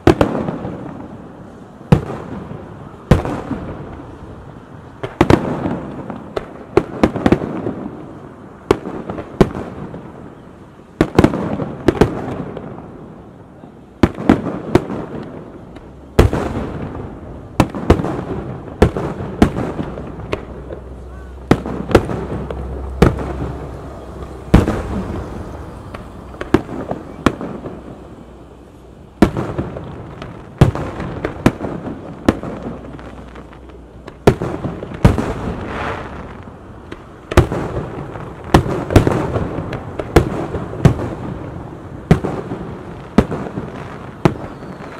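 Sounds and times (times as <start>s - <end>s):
firework shells bursting: 14.2s - 44.9s.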